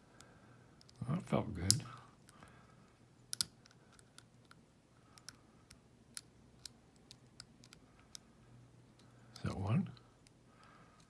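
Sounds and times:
lock pick clicking: 0:03.3 - 0:04.6.

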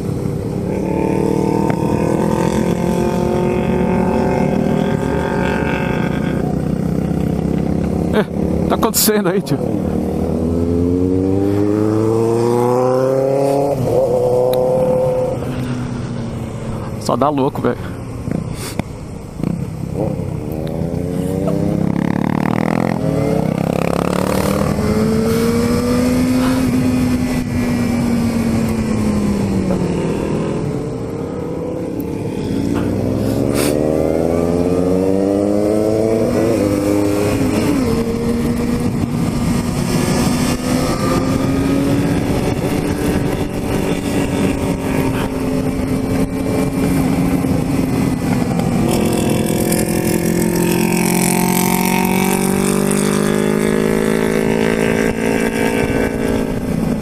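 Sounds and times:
motorcycle engine accelerating: 0:00.0 - 0:57.0
wind noise on microphone: 0:21.5 - 0:57.0.

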